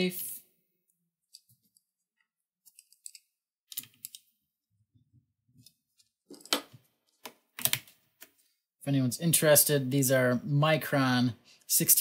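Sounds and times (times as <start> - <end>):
clicks of small parts handled: 2.6 - 4.3.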